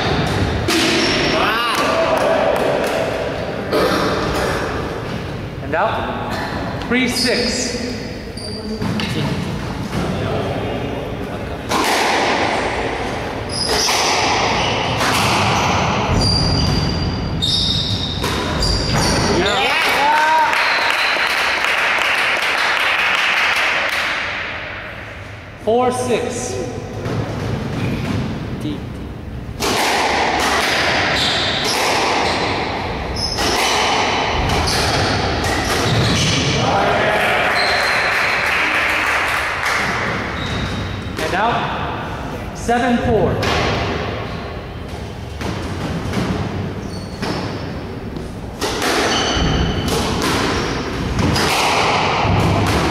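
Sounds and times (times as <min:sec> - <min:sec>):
squash ball hits: 0:00.0 - 0:04.8, 0:11.7 - 0:20.1, 0:29.6 - 0:36.6, 0:45.3 - 0:52.9
squash ball cracking off rackets: 0:11.7 - 0:12.9, 0:47.2 - 0:52.9
shoes squeaking on wooden floor: 0:13.4 - 0:15.0, 0:40.2 - 0:41.2, 0:46.7 - 0:49.9.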